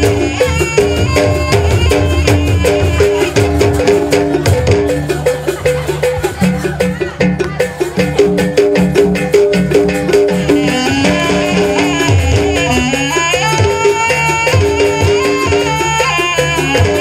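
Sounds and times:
percussion beat: 0:00.0 - 0:17.0
higher melody line: 0:07.8 - 0:17.0.

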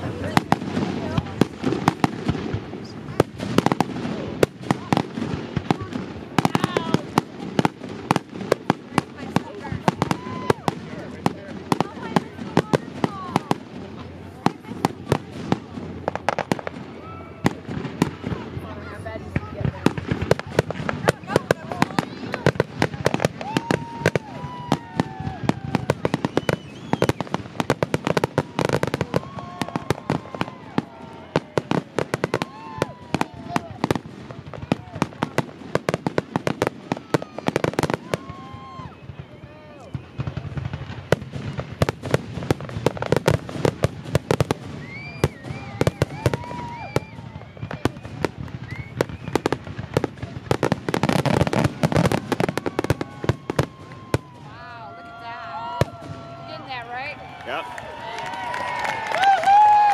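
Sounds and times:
rushing firework burst: 0:00.0 - 0:54.6
fireworks crackling and popping: 0:00.0 - 0:59.9
firework whistles: 0:23.1 - 0:34.1, 0:43.5 - 0:54.6.

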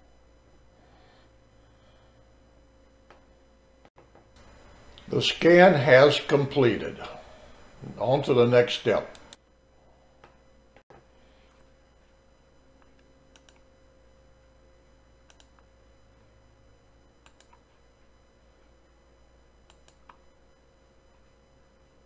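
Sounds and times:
faint steady hum: 0:00.0 - 0:22.0
computer mouse clicks: 0:12.8 - 0:13.7, 0:15.3 - 0:15.7, 0:17.2 - 0:17.6, 0:19.7 - 0:20.2.

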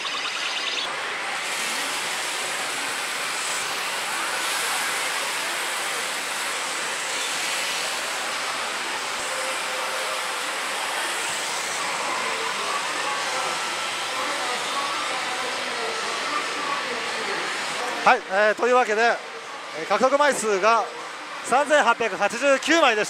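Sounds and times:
din of gaming machines: 0:00.0 - 0:01.0.

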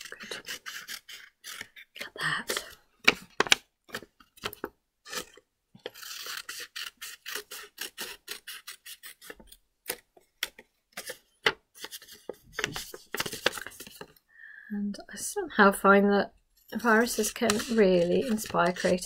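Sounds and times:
scissors cutting paper: 0:00.0 - 0:02.8, 0:03.4 - 0:10.0, 0:11.8 - 0:14.1, 0:16.8 - 0:19.0.

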